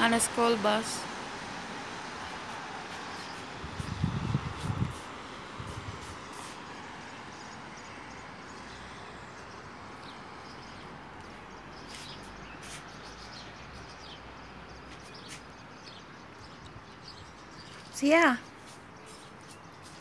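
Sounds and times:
distant street traffic: 0:00.0 - 0:20.0
bird chirps: 0:07.3 - 0:20.0.

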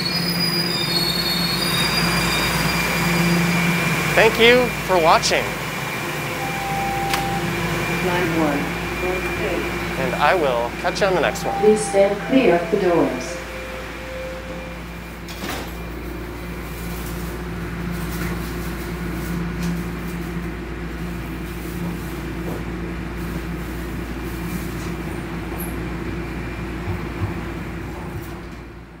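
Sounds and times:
subway train humming: 0:00.0 - 0:29.0
train doors closing knock: 0:06.5 - 0:07.6.

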